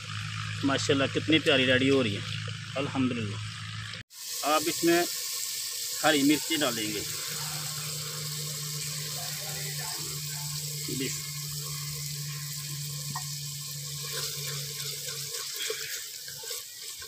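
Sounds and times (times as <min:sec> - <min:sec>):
sauce sizzling in a pot: 0:04.1 - 0:17.0
low steady hum: 0:05.6 - 0:16.2.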